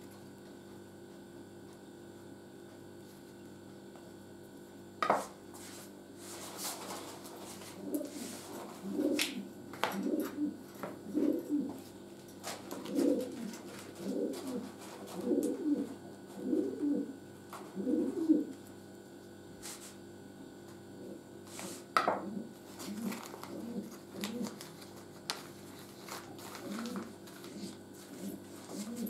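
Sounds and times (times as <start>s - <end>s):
pigeon cooing: 7.7s - 18.6s, 22.0s - 24.8s, 26.5s - 29.0s.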